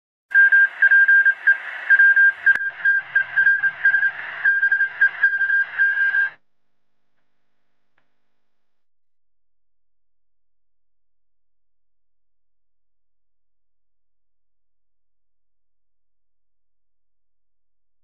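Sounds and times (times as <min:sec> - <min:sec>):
morse code beeps: 0:00.4 - 0:06.4
radio static: 0:00.4 - 0:06.4.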